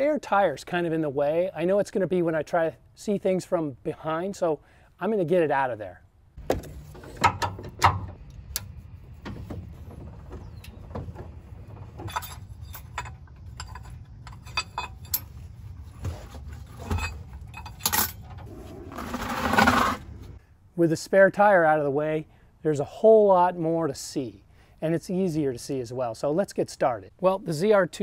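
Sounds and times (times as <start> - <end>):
loud scraping rush: 18.4 - 20.4.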